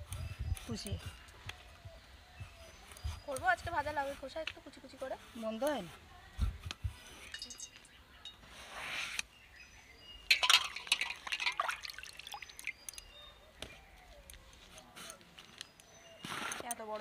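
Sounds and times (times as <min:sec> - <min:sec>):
light clinks: 0:07.3 - 0:08.4, 0:10.3 - 0:13.2
water pouring into metal pot: 0:10.3 - 0:12.7
water dripping: 0:10.3 - 0:13.1.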